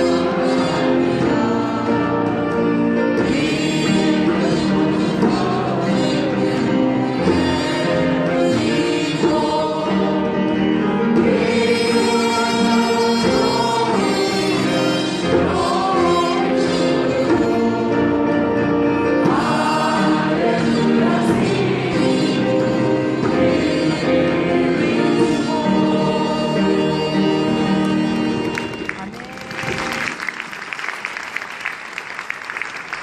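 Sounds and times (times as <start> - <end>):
choir singing with instruments: 0.0 - 28.8
audience applause: 27.8 - 33.0.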